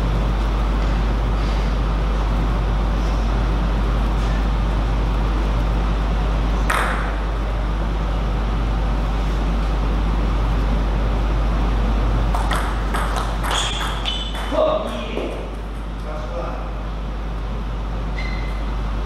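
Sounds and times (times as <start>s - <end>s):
background hum and hiss: 0.0s - 19.0s.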